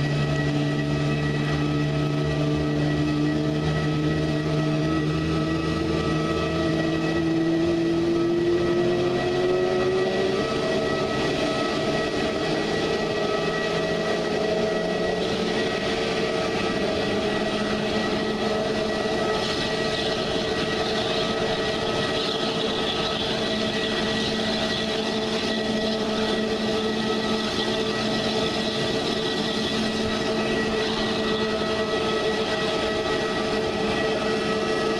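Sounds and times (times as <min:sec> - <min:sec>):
jet engine whining: 0:00.0 - 0:34.9.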